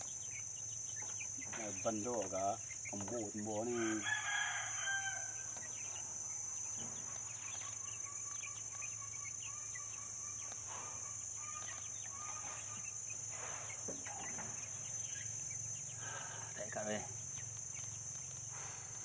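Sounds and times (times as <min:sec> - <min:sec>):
chickens chirping and clucking: 0:00.0 - 0:19.0
steady high-pitched hiss: 0:00.0 - 0:19.0
rooster crowing: 0:03.6 - 0:05.6.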